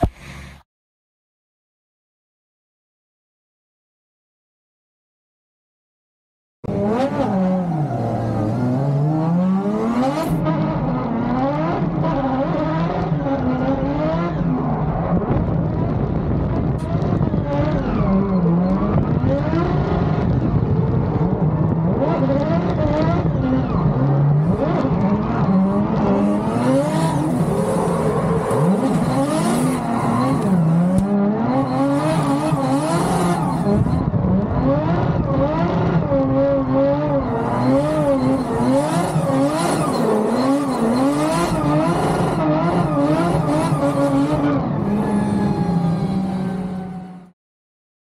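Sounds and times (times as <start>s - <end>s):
car engine revving hard: 16.8s - 47.2s.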